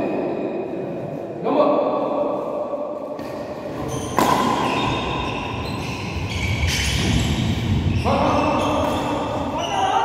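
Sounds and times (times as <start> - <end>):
racket striking shuttlecock: 3.2 - 5.0.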